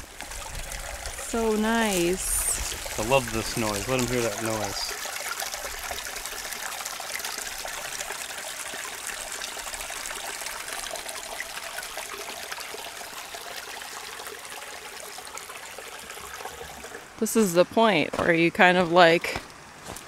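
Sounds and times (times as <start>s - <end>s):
creek trickling over rocks: 0.0s - 20.0s.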